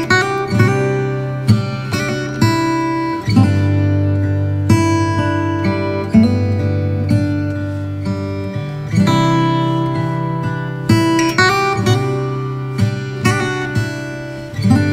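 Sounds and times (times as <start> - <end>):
acoustic guitar chords: 0.0 - 14.9.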